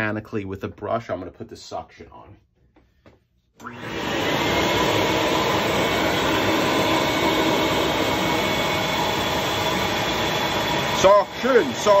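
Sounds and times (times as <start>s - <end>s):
vacuum suction motor running: 3.6s - 12.0s.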